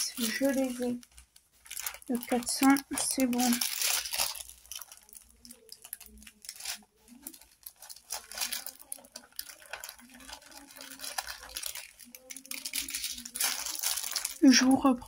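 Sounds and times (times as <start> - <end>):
plastic bags crinkling: 0.0 - 15.0.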